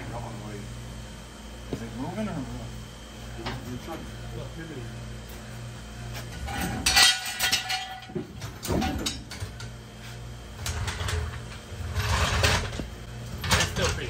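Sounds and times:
floor jack clanking: 10.7s - 12.8s.

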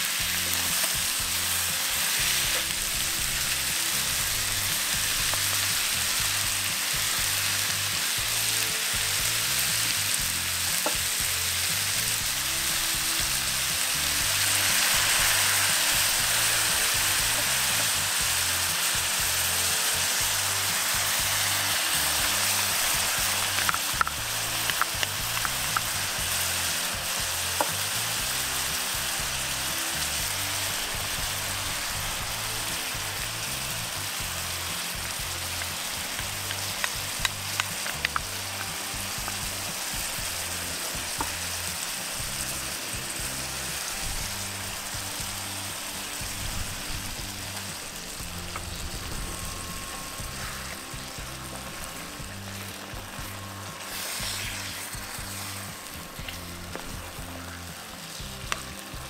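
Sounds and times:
food sizzling in skillet: 0.0s - 59.0s.

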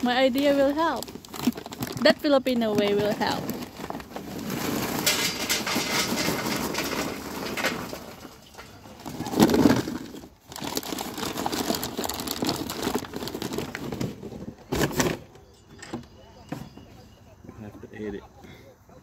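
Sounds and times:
paper bag rustling: 0.0s - 15.3s
charcoal clattering into metal: 0.1s - 15.2s.

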